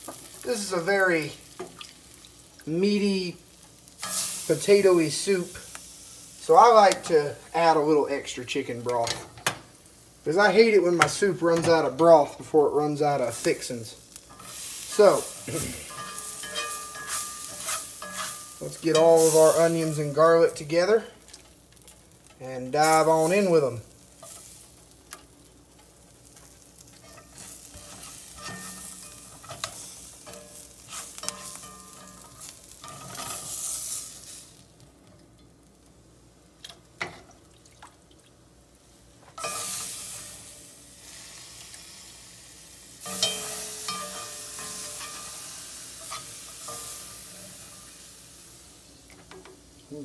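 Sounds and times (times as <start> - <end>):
grease sizzling: 0.0 - 50.0
spatula scraping pot: 14.3 - 19.0.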